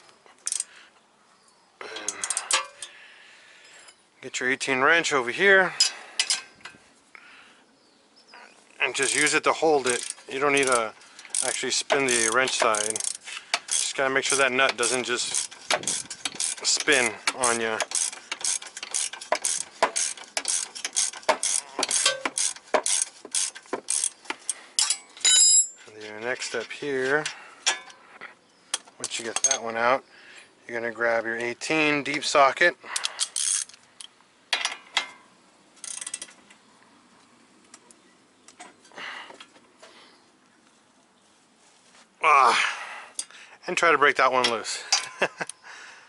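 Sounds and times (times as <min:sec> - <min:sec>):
hand ratchet clicking: 0:00.4 - 0:00.7, 0:09.0 - 0:25.8, 0:33.0 - 0:33.8, 0:35.8 - 0:36.3.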